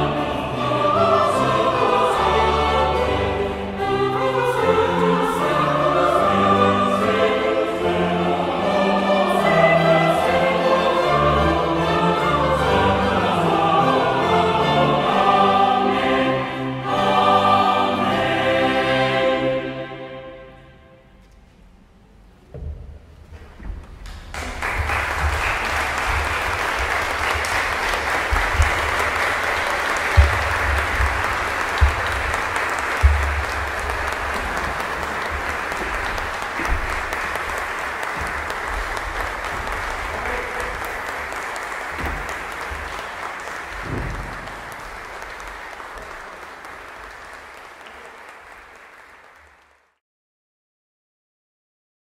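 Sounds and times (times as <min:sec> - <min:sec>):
audience applauding: 0:24.1 - 0:50.0
low thumps: 0:30.0 - 0:40.6.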